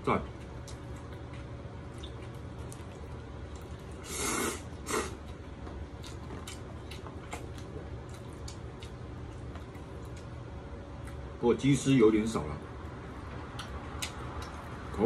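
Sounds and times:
person slurping noodles: 4.0 - 5.2.

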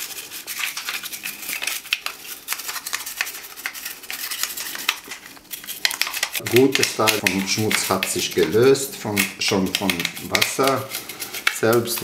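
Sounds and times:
toothbrush scrubbing plastic: 0.0 - 12.0.

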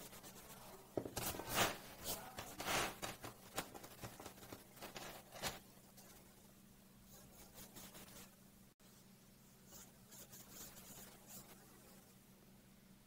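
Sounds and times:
pencil scratching on paper: 7.1 - 8.4, 9.7 - 12.1.

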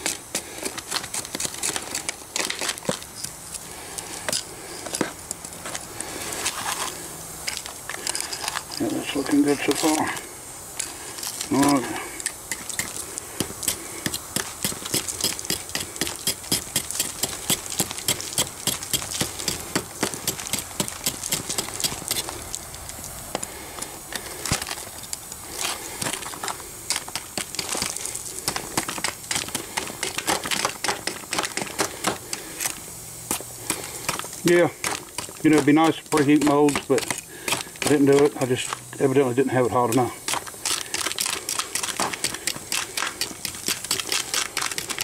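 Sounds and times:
metal tongs scraping through sand: 33.7 - 38.8.

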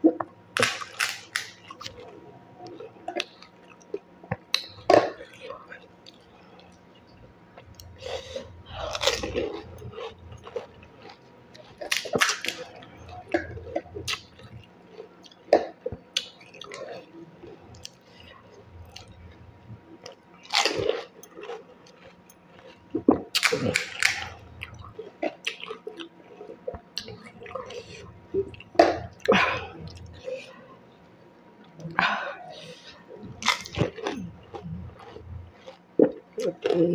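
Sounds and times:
crisp food crunching: 0.5 - 6.8, 7.6 - 18.2, 20.0 - 29.3, 33.2 - 36.8
wet chewing: 7.6 - 19.4, 20.0 - 30.2, 32.6 - 36.9.

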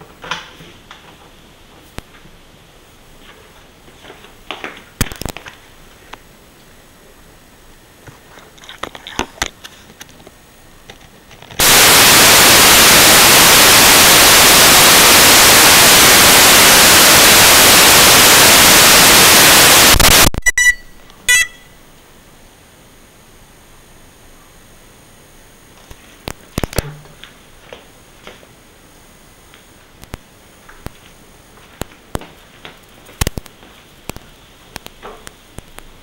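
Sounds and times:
video receiver static hiss: 0.0 - 36.0
short high beeps: 20.3 - 21.8
faint crackles: 29.4 - 36.0.

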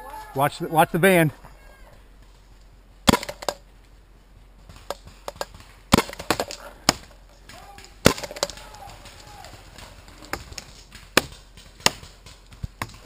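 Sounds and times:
paintball markers firing: 4.7 - 13.0.

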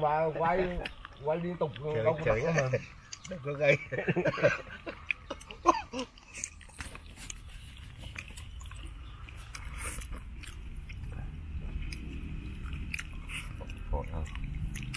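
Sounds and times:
people chewing: 0.2 - 14.9
small crunches and clicks: 5.0 - 14.9.

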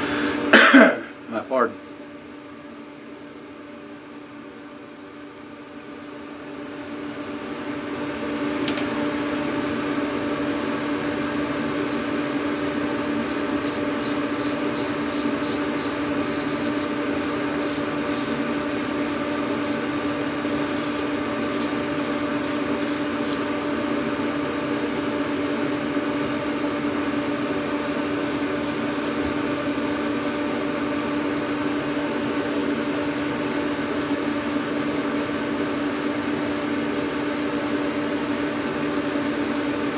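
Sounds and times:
electric motor hum: 5.8 - 39.9
razor scraping stubble: 11.5 - 23.5, 25.3 - 31.0, 31.9 - 39.9.

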